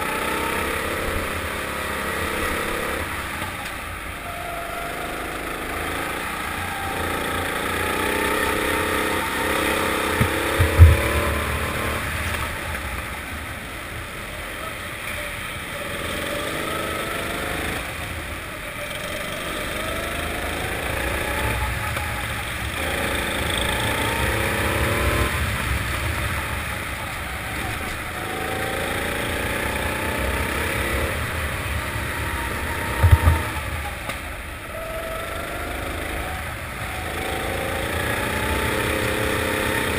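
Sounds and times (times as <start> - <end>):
kart engine revving: 0.0 - 13.4, 14.3 - 39.9
short low thumps: 10.2 - 11.3.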